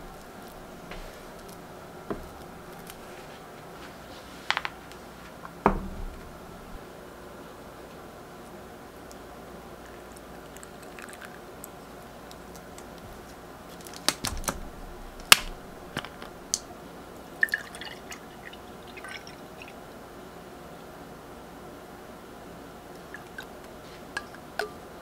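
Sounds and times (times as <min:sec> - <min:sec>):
drink pouring into glass: 0:09.8 - 0:11.5, 0:17.4 - 0:19.8, 0:23.0 - 0:23.6.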